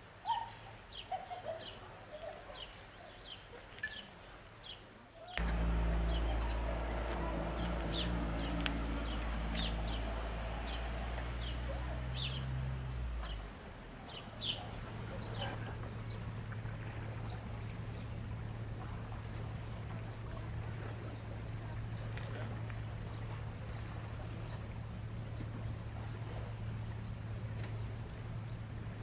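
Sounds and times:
small birds chirping: 0.3 - 16.6
low steady hum: 5.4 - 29.0.

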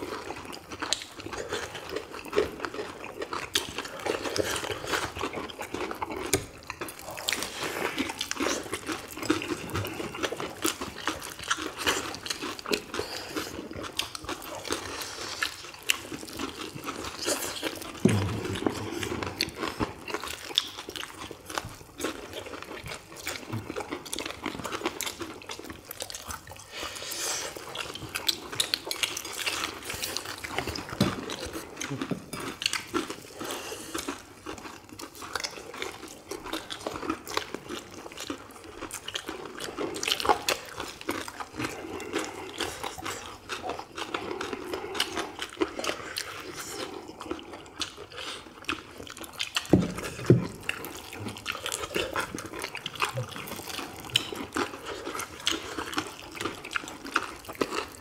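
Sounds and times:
crunchy chewing of fried chicken: 0.0 - 58.0
wet mouth sounds: 6.0 - 36.9.

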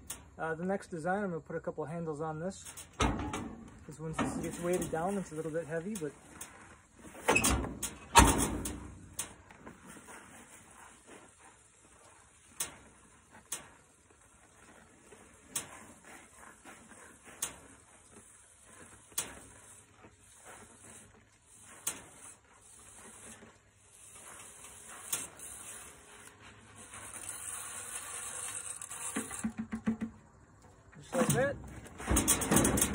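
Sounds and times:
hiss: 18.5 - 29.4
sharp knocks and clicks: 29.0 - 30.3.

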